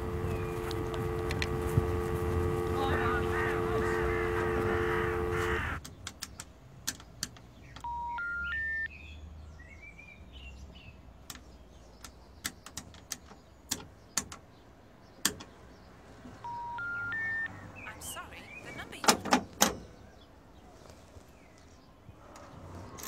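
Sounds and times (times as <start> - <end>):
faint birdsong: 0.0 - 23.0
rising telephone tone beeps: 7.8 - 8.9, 16.4 - 17.6.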